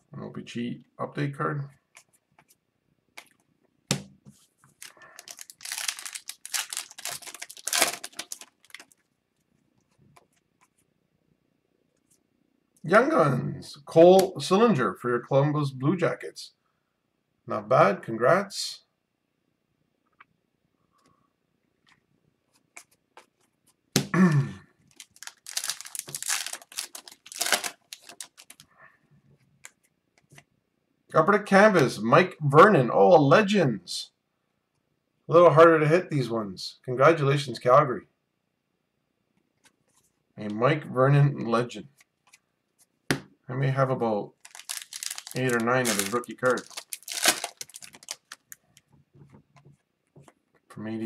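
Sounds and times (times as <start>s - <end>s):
wrapper crinkling and tearing: 4.8s - 9.1s, 24.9s - 28.6s, 44.4s - 48.8s.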